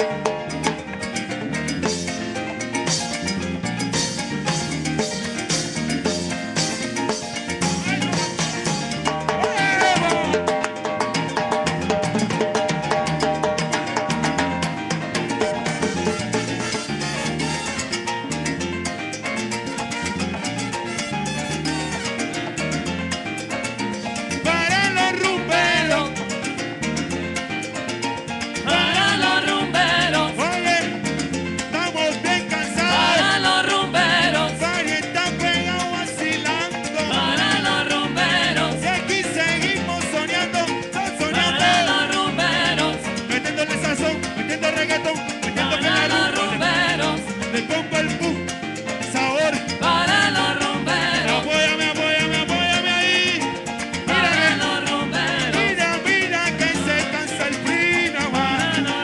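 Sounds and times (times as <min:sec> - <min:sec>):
live salsa band playing: 0:00.0 - 0:59.0
people singing: 0:09.4 - 0:10.6, 0:24.9 - 0:26.1, 0:28.6 - 0:31.0, 0:32.3 - 0:35.1, 0:36.0 - 0:39.8, 0:41.0 - 0:43.8, 0:45.4 - 0:48.0, 0:49.7 - 0:59.0.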